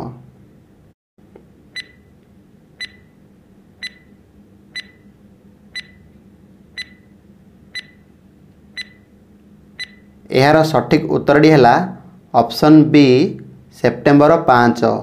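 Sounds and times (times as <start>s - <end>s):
high tick-beeps: 1.8s - 2.1s, 2.8s - 3.1s, 3.8s - 4.2s, 4.8s - 5.1s, 5.8s - 6.1s, 6.8s - 7.1s, 7.7s - 8.0s, 8.8s - 9.1s, 9.8s - 10.1s.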